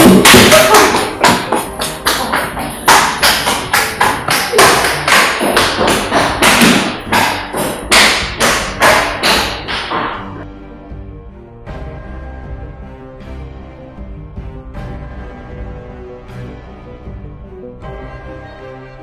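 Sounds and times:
hurried footsteps on tiled floor: 0:00.0 - 0:10.4.

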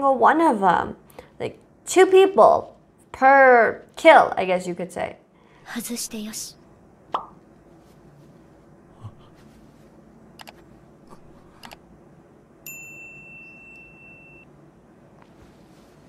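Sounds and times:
notification bell ding: 0:12.7 - 0:14.5.

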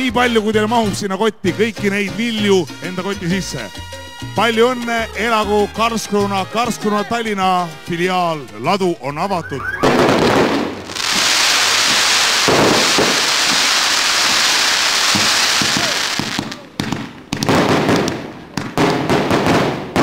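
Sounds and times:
fireworks bangs and pops: 0:09.8 - 0:20.0
fireworks crackling: 0:09.8 - 0:20.0.

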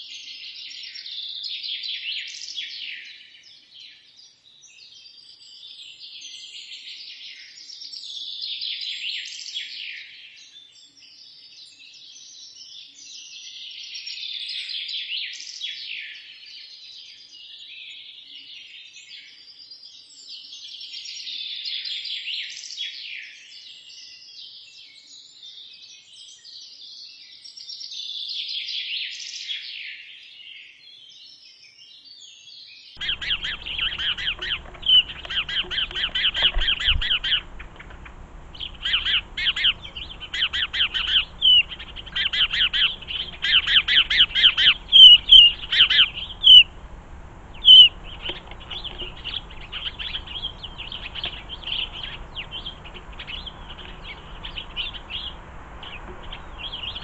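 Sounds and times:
faint bird song: 0:00.0 - 0:57.0
small birds chirping: 0:30.4 - 0:57.0.

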